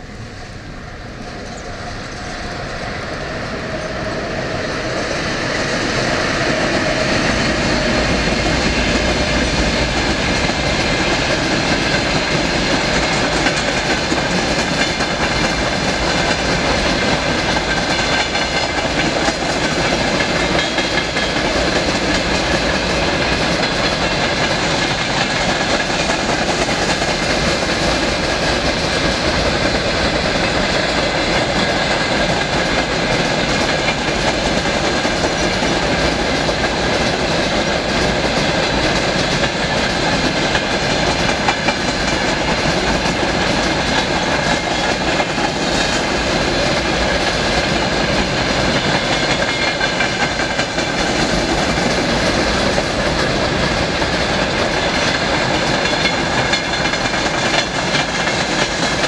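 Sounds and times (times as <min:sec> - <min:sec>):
clickety-clack of wheels on rails: 0:00.0 - 0:59.0
freight train rumbling over bridge: 0:00.0 - 0:59.0.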